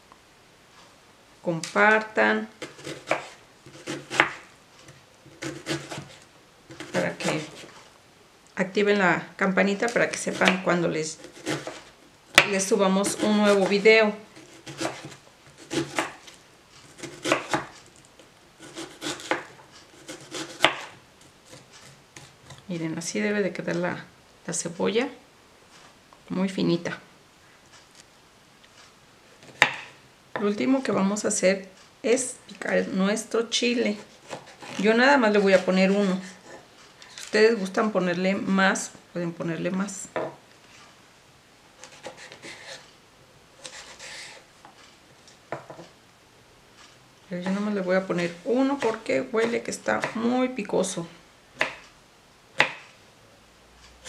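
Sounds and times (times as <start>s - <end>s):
knife chopping on cutting board: 2.6s - 4.4s, 5.3s - 7.7s, 10.2s - 13.8s, 14.4s - 16.3s, 17.0s - 17.7s, 18.6s - 21.6s, 29.5s - 29.9s, 48.8s - 50.2s, 52.6s - 52.8s.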